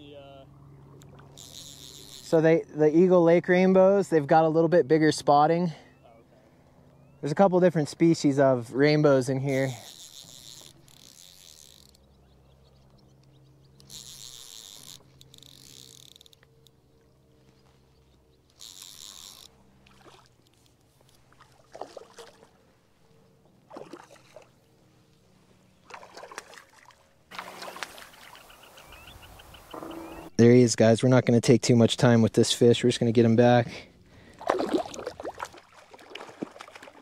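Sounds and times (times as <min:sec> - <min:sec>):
fly reel clicker buzzing: 0:00.9 - 0:02.4, 0:09.5 - 0:17.1, 0:18.4 - 0:19.7
fish splashing: 0:18.9 - 0:20.4, 0:21.2 - 0:22.6, 0:23.7 - 0:24.6, 0:25.8 - 0:28.6, 0:34.2 - 0:37.0.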